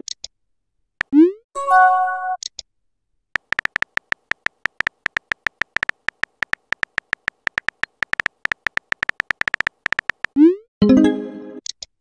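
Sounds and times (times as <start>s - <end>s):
keyboard typing clicks: 3.4s - 10.4s.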